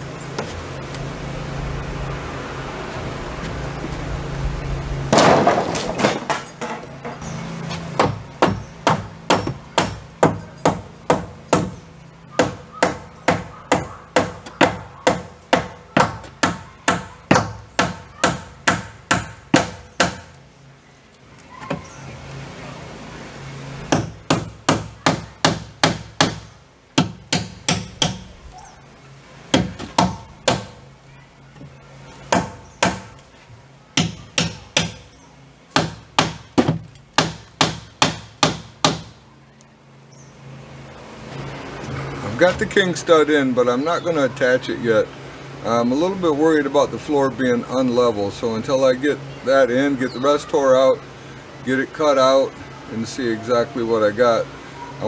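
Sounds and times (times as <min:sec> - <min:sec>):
hammer driving nails into wood: 0:23.9 - 0:28.3, 0:35.7 - 0:39.1.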